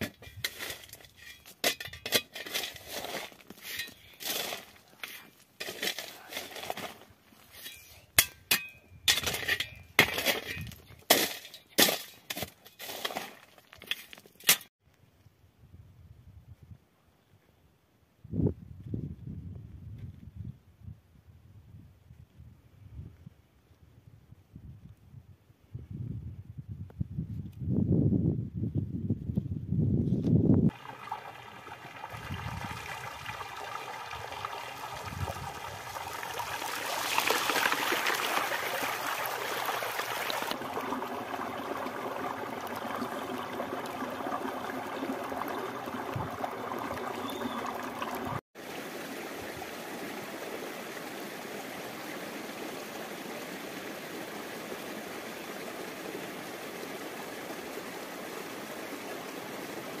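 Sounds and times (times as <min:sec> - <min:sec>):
stream running over rocks: 0:30.7 - 1:00.0
water rushing along a channel: 0:30.7 - 1:00.0.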